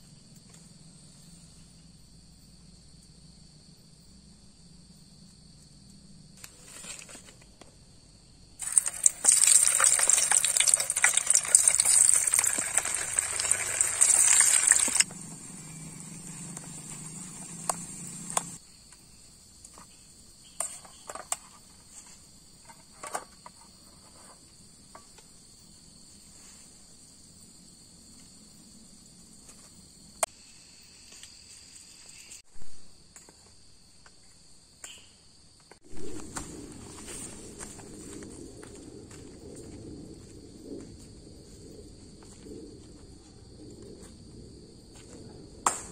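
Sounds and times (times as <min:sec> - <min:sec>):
crickets chirring: 0:00.0 - 0:45.9
loud crackling hiss: 0:08.6 - 0:15.1.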